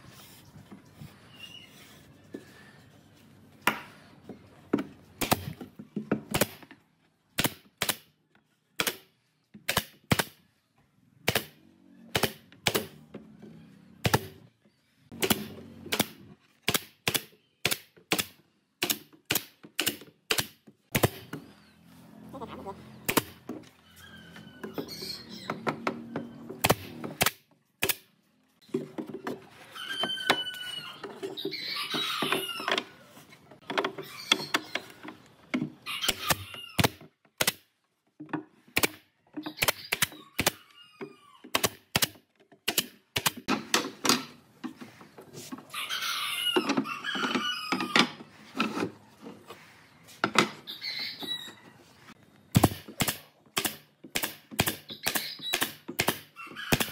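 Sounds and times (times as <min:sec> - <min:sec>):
nail gun shots: 0:05.2 - 0:05.6, 0:06.3 - 0:06.6, 0:07.4 - 0:08.1, 0:08.8 - 0:10.4, 0:11.2 - 0:13.0, 0:14.0 - 0:14.4, 0:15.2 - 0:21.3, 0:26.6 - 0:28.1, 0:36.1 - 0:37.7, 0:41.5 - 0:43.8, 0:52.5 - 0:56.9.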